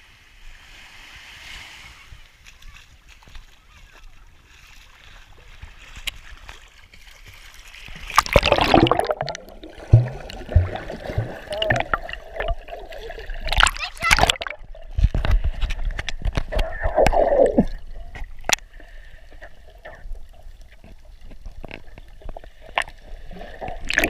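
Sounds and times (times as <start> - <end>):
water splashing and bubbling: 4.4 - 24.0.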